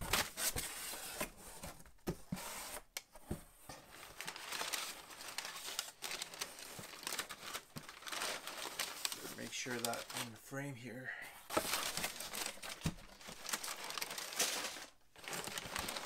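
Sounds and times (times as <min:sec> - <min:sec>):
packing paper crinkling: 0:03.9 - 0:10.5, 0:11.5 - 0:16.0.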